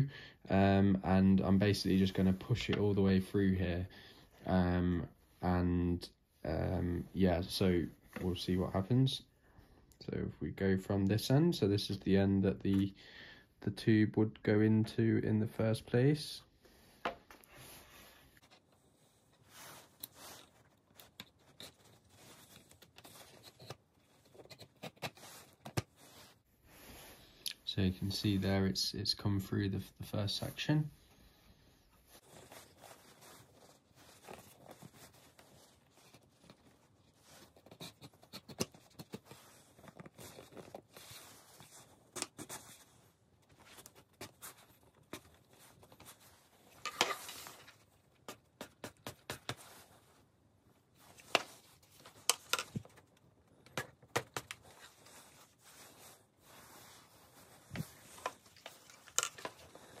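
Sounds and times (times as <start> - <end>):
faint scrapes and clicks: 54.5 - 60.0.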